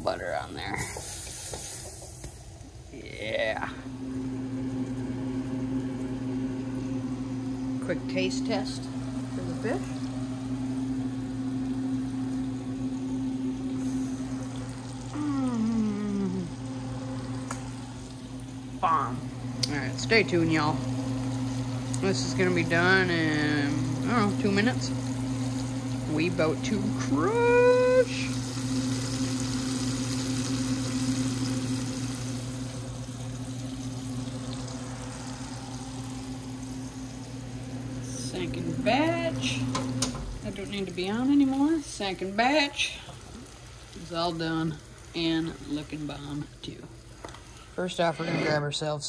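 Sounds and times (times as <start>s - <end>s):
fish frying in oil: 0.0s - 48.1s
steady low hum: 0.0s - 49.0s
person humming mmm while chewing: 15.1s - 16.7s.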